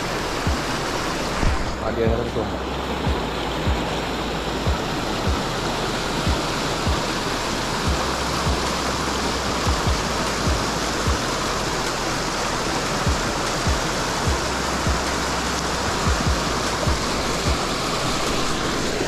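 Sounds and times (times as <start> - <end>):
water pouring from a pipe: 0.0 - 19.0
soft low thumps: 0.4 - 5.6, 6.2 - 7.2, 7.8 - 8.8, 9.6 - 11.7, 12.9 - 15.2, 15.9 - 17.8.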